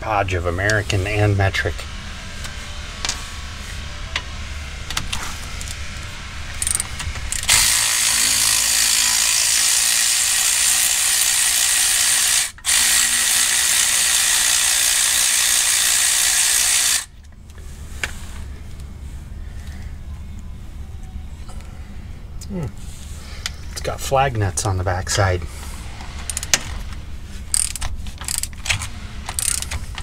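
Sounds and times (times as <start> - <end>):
cordless ratchet spinning: 6.6 - 17.1, 26.3 - 26.6, 27.5 - 30.0.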